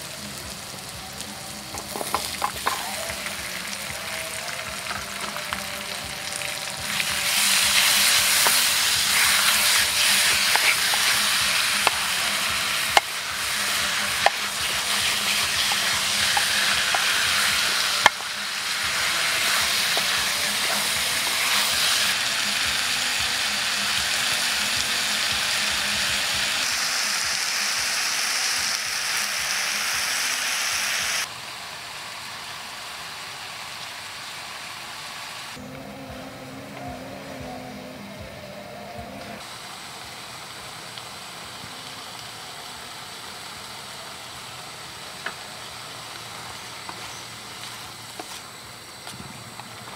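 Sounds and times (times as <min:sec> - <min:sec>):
food sizzling in a wok: 0:00.0 - 0:35.7, 0:39.4 - 0:49.9
spatula stirring food: 0:06.9 - 0:22.0.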